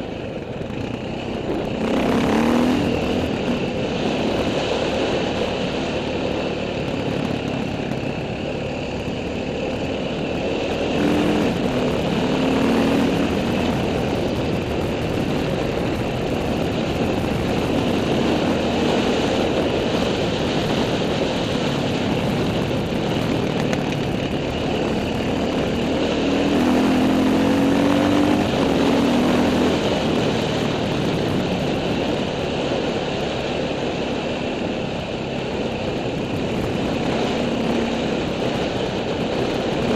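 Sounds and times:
motorcycle engine running: 0.0s - 39.9s
wind noise on helmet: 0.0s - 39.9s.

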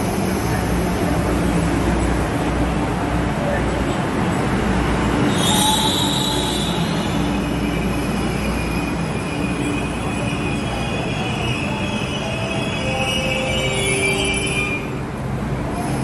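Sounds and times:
train low rumble: 0.0s - 16.0s
train brakes squealing: 5.2s - 15.0s.

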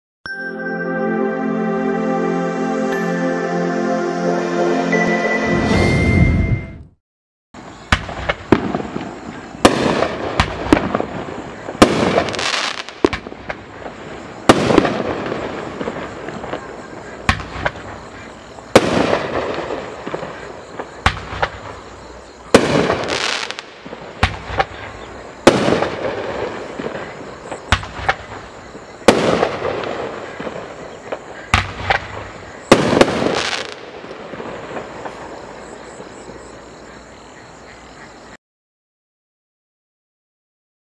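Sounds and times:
fireworks bangs: 7.9s - 36.5s.

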